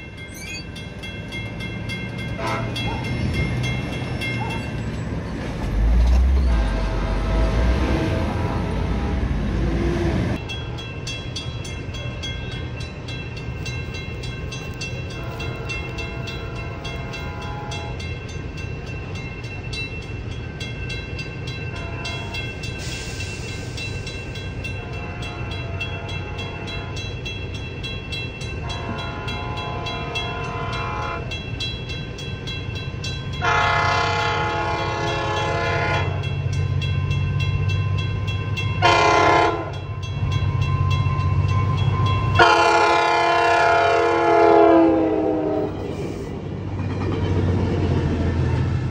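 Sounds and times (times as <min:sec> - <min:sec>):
low rumble of train: 0:00.0 - 0:48.9
train horn blasts: 0:02.4 - 0:03.0, 0:06.2 - 0:09.2, 0:15.2 - 0:18.1, 0:21.7 - 0:22.4, 0:24.6 - 0:27.1, 0:28.6 - 0:31.4, 0:33.4 - 0:36.3, 0:38.6 - 0:46.1.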